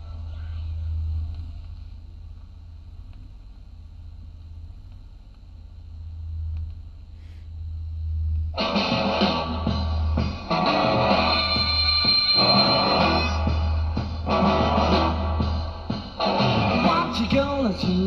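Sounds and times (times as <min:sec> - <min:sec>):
record groove low hum: 0:00.0 - 0:18.0
rock music record playing: 0:08.0 - 0:18.0
loud distorted electric guitar: 0:08.6 - 0:18.0.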